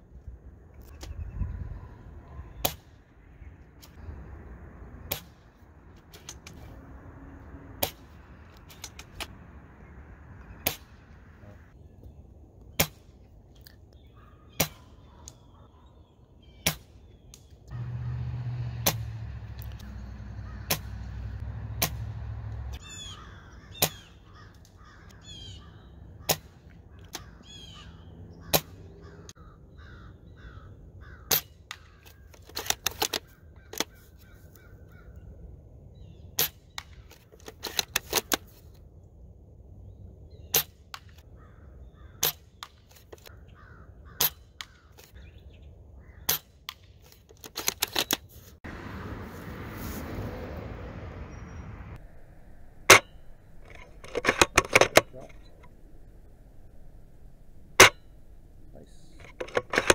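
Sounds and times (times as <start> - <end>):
birds calling: 13.8 - 18.2, 19.1 - 32.5, 33.1 - 37.5, 39.9 - 46.5, 51.0 - 59.9.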